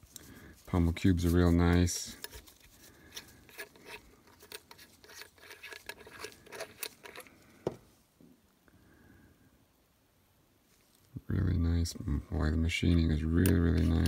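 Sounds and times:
gloved hands rubbing metal: 0:00.0 - 0:07.3, 0:12.8 - 0:14.0.

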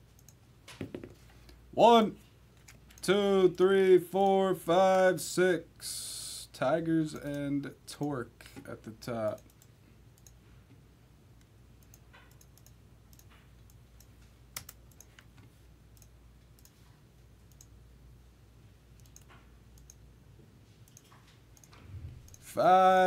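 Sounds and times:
computer mouse clicks: 0:00.1 - 0:00.4, 0:09.3 - 0:10.4, 0:11.4 - 0:16.8, 0:17.4 - 0:17.7, 0:19.0 - 0:20.0, 0:20.8 - 0:22.4.

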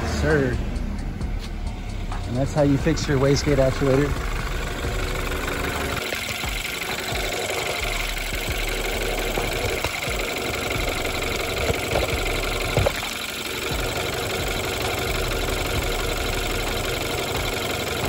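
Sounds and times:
car engine idling with clatter: 0:00.0 - 0:18.0
sharp clicks: 0:05.4 - 0:15.6.

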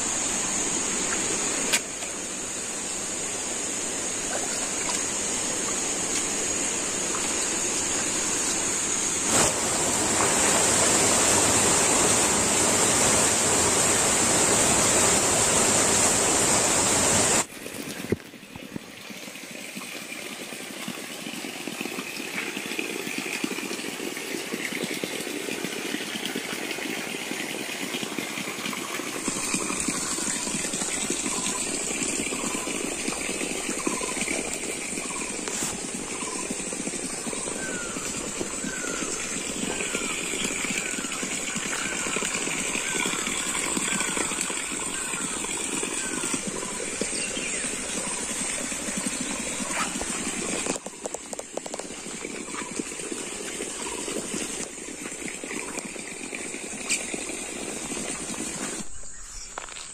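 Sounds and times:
running water rushing: 0:00.0 - 0:59.9.

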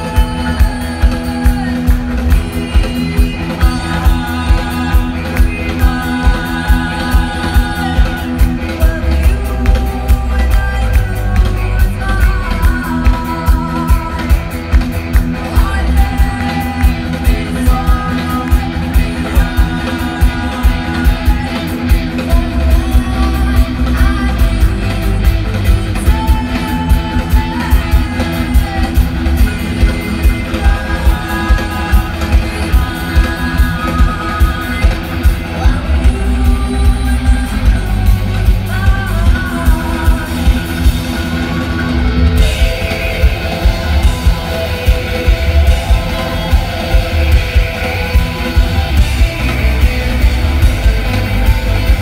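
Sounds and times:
live rock band playing: 0:00.0 - 0:52.0
woman singing: 0:00.0 - 0:52.0.

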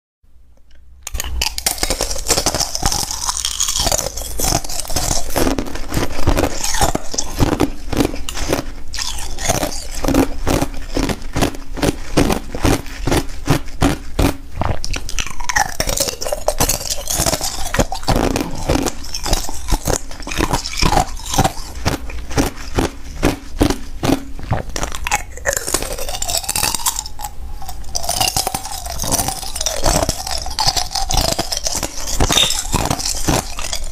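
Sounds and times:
ice crunching between teeth: 0:01.1 - 0:33.9.

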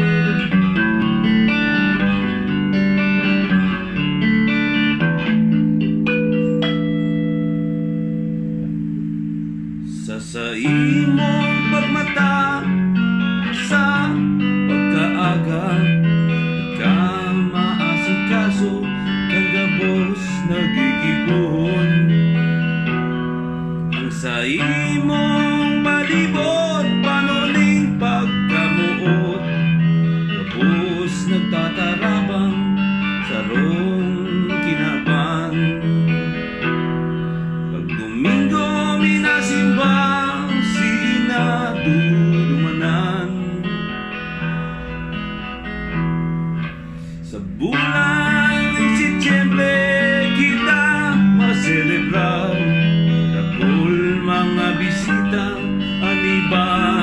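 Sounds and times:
electric guitar playing: 0:00.0 - 0:57.0
man singing: 0:09.8 - 0:23.0, 0:23.9 - 0:36.5, 0:37.7 - 0:44.6, 0:47.2 - 0:57.0.

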